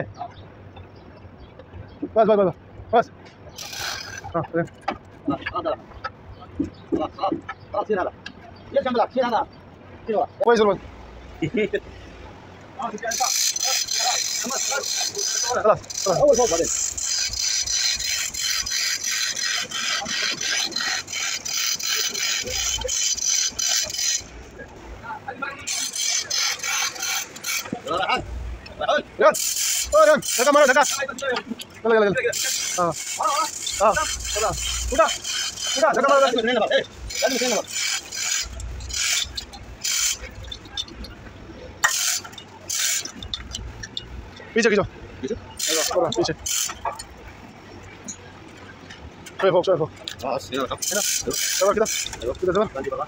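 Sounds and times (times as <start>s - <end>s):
metal scraping and rasping: 3.5s - 5.1s, 12.8s - 24.8s, 25.6s - 53.0s
chain hoist ratchet clattering: 3.5s - 5.7s, 12.8s - 24.6s, 25.6s - 53.0s.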